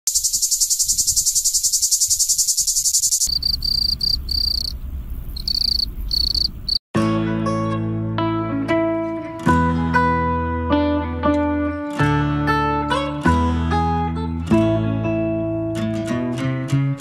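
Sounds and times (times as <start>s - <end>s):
cicada buzzing: 0.1s - 6.8s
crickets chirping: 0.1s - 6.8s
plucked guitar music: 7.0s - 17.0s.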